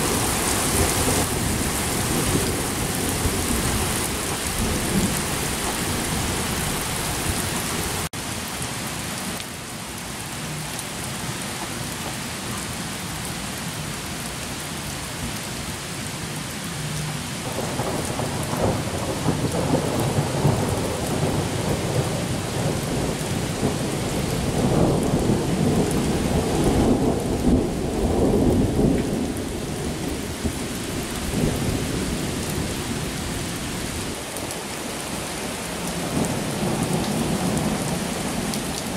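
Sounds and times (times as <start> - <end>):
steady rain falling: 0.0 - 38.9
thunder rolling: 17.5 - 30.6.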